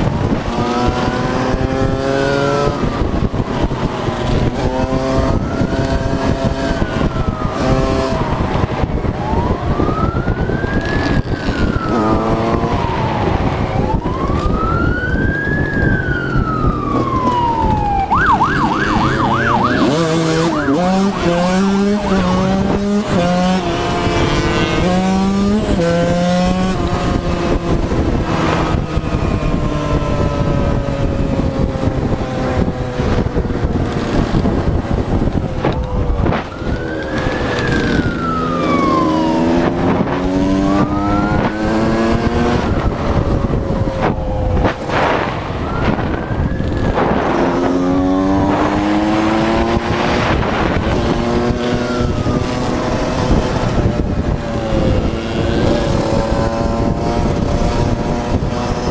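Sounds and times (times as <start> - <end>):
police siren wailing: 0.0 - 58.9
dirt bike engine revving: 0.2 - 3.0, 4.2 - 8.4, 18.6 - 30.8, 37.1 - 42.9, 46.9 - 58.9.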